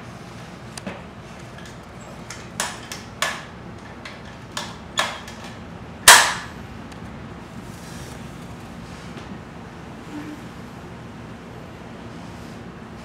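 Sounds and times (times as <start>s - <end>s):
sharp knocks and bangs: 2.6s - 6.6s.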